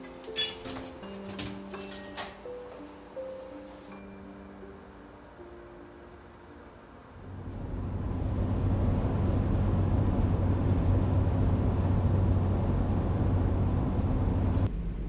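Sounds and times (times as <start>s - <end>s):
car interior road noise: 7.2s - 15.0s.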